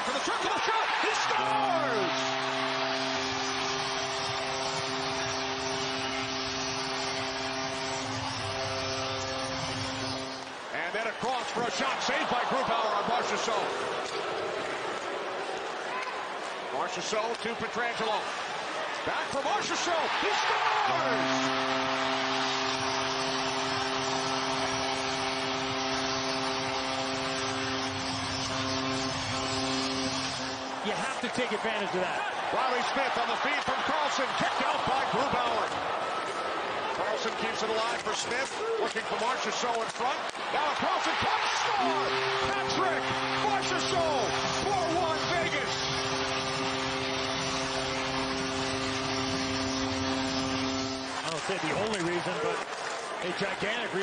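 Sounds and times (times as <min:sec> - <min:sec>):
crowd cheering: 0:00.0 - 0:54.0
goal horn chord: 0:01.0 - 0:10.7, 0:20.3 - 0:31.3, 0:40.6 - 0:52.0.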